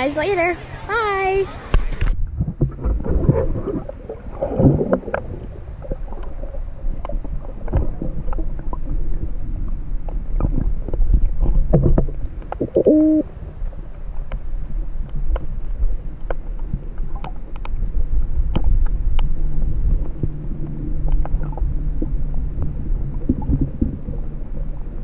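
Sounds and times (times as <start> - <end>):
underwater rumble of moving water: 0.6 - 25.0
underwater clicks and knocks: 2.0 - 9.3, 10.0 - 13.1, 15.0 - 24.8
muffled tone: 12.6 - 13.4.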